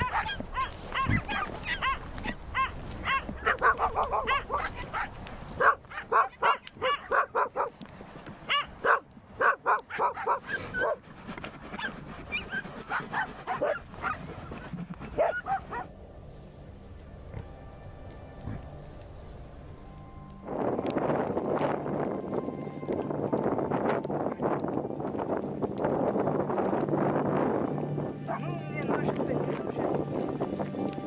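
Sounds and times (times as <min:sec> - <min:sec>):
dog barking and yelping: 0:00.0 - 0:07.8, 0:08.4 - 0:11.0, 0:11.7 - 0:15.9.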